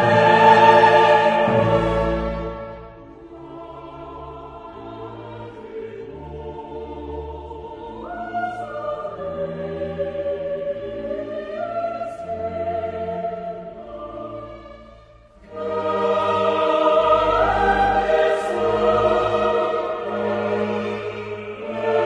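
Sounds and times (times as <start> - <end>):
choir-like voices holding notes: 0.0 - 22.0.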